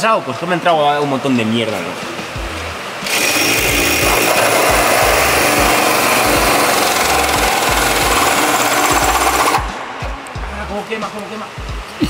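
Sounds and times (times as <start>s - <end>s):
power tool cutting sheet metal: 3.0s - 9.8s.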